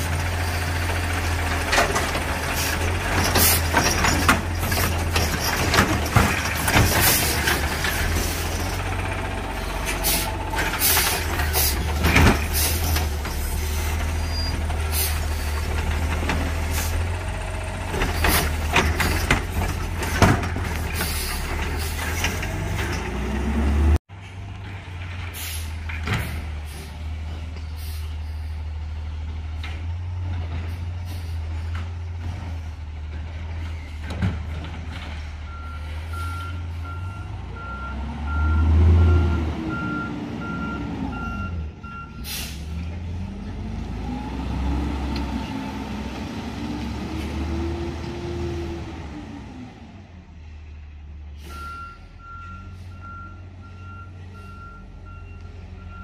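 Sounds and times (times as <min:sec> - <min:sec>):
garbage truck diesel engine: 0:00.0 - 0:56.0
carts knocking and clattering: 0:01.4 - 0:14.0, 0:17.8 - 0:23.2.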